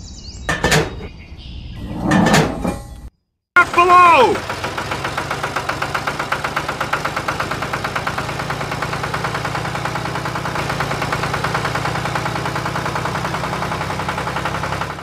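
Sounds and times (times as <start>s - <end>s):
model tractor engine idling: 3.6s - 15.0s.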